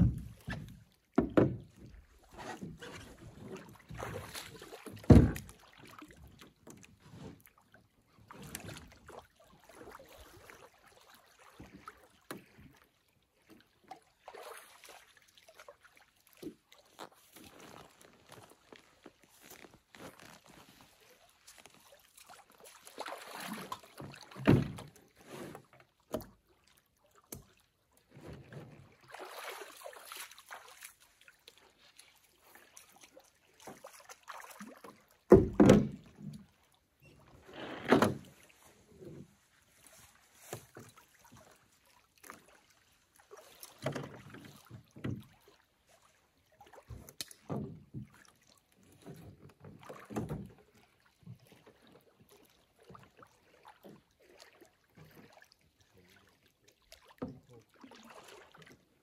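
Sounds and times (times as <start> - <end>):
thumps against canoe hull: 0.0 - 4.2, 4.9 - 5.6, 24.0 - 26.3, 35.3 - 36.4, 37.5 - 38.4, 43.8 - 45.4, 46.9 - 48.3, 49.1 - 50.6
feet splashing in shallow water: 0.0 - 27.8, 28.8 - 35.3, 36.0 - 59.0.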